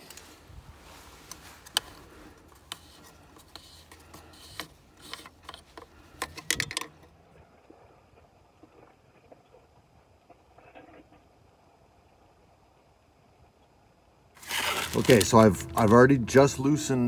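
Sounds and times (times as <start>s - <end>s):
plastic clicks and scrapes: 1.3s - 7.1s.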